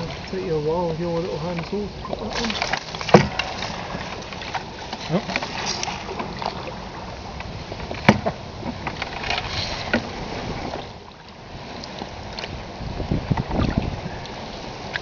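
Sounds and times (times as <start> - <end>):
paddle strokes in water: 0.0 - 15.0
knocks on canoe: 2.4 - 5.5, 7.9 - 9.0.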